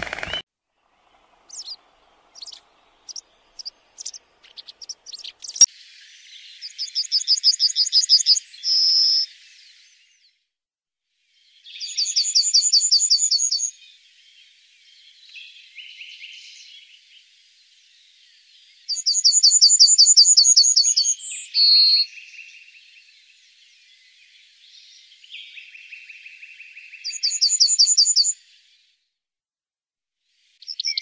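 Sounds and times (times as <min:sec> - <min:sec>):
bird singing fast repeated notes: 0:00.0 - 0:00.4, 0:01.0 - 0:05.7, 0:27.0 - 0:28.3, 0:30.7 - 0:31.0
faint bird chirps: 0:00.0 - 0:10.4, 0:11.3 - 0:29.1, 0:30.4 - 0:31.0.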